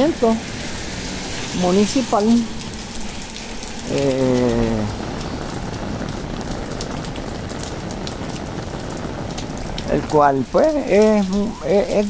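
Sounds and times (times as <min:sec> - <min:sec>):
steady rain: 0:00.0 - 0:12.0
drops ticking: 0:02.2 - 0:12.0
man's drawn-out vocal sound: 0:03.9 - 0:05.0.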